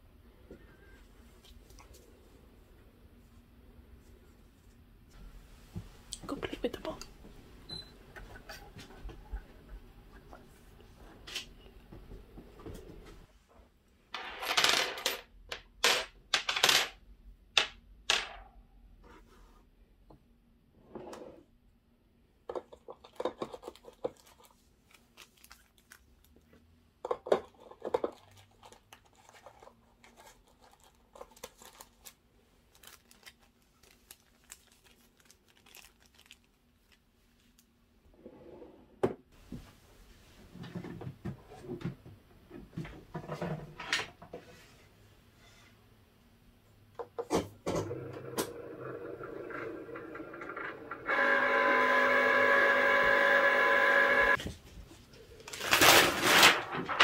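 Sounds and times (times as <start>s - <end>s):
paper rustling and crinkling: 23.5s - 26.4s, 27.6s - 37.7s, 54.4s - 57.0s
cutting machine motor whirring: 51.0s - 54.4s.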